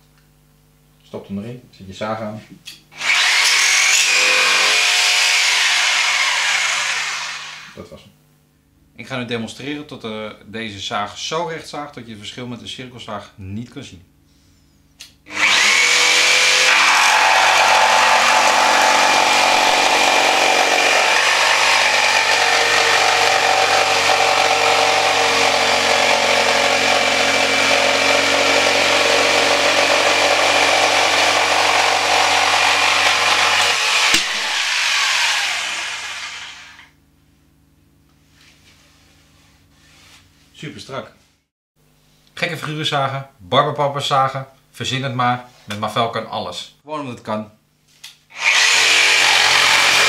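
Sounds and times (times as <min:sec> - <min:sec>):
jigsaw cutting plywood: 0:03.0 - 0:07.8, 0:15.3 - 0:36.9, 0:48.3 - 0:50.0.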